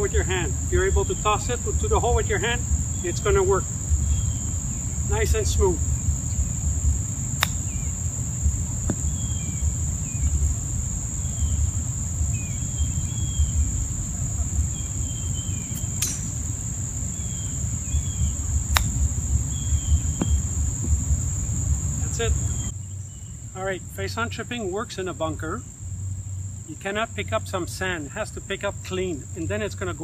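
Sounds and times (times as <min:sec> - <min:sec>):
high-pitched insect drone: 0:00.0 - 0:23.2
bird chirps: 0:04.0 - 0:05.1, 0:09.0 - 0:10.4, 0:12.3 - 0:16.4
golf club striking ball: 0:07.3 - 0:09.5, 0:15.8 - 0:16.5, 0:18.7 - 0:21.0.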